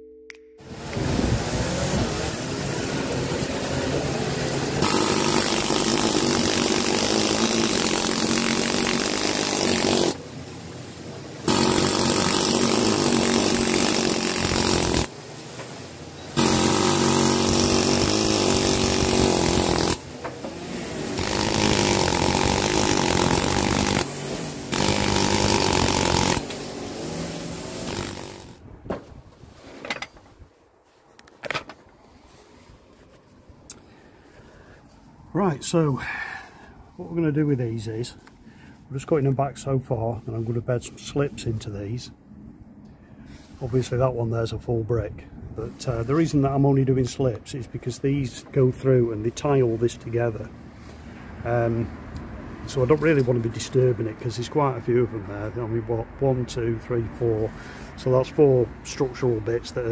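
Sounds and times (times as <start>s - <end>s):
power tool cutting bricks: 0.8s - 10.2s, 11.4s - 15.2s, 16.3s - 28.6s.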